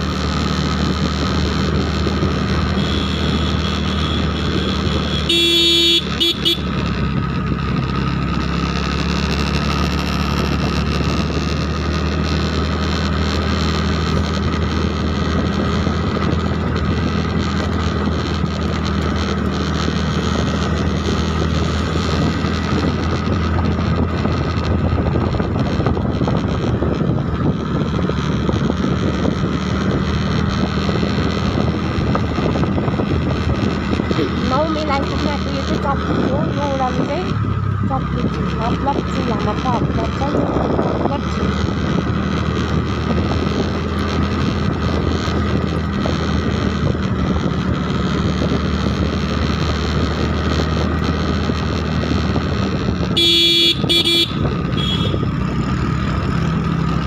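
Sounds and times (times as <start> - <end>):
vehicle engine droning: 0.0 - 57.0
vehicle horn: 2.7 - 6.8, 53.1 - 55.3.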